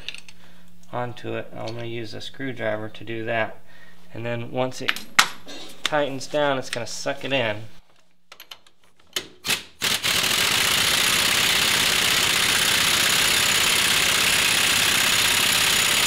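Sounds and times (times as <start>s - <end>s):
air impact wrench hammering: 9.4s - 16.0s.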